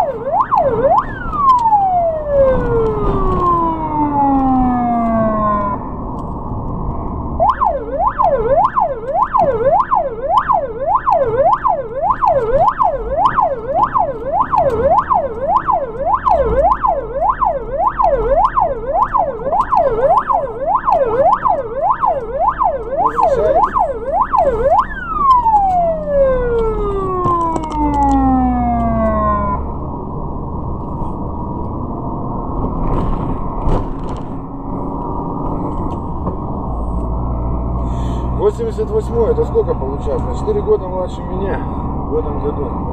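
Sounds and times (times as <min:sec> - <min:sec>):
ambulance siren yelping: 0:00.0 - 0:06.1, 0:07.3 - 0:29.8
car engine and road noise: 0:00.0 - 0:42.9.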